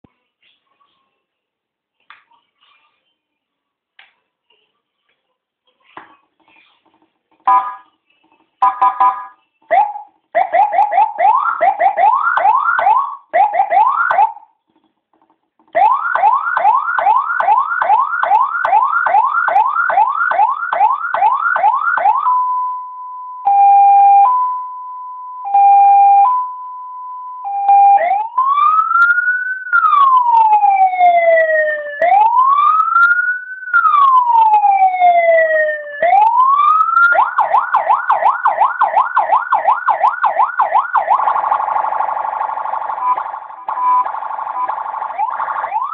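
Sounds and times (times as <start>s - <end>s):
electronic police siren: 8.6s - 14.5s, 15.8s - 45.9s.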